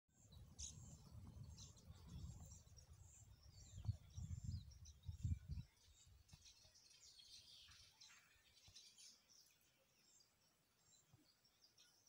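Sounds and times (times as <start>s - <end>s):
faint high bird chirps: 0.1s - 12.0s
low rumble on microphone: 0.3s - 6.4s.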